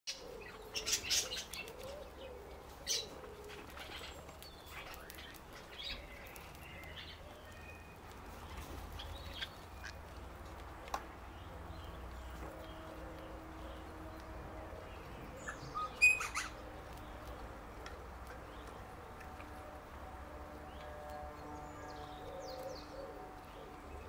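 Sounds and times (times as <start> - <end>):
birds chirping: 0.1 - 24.0
bird beak crunching leaves: 3.4 - 10.1.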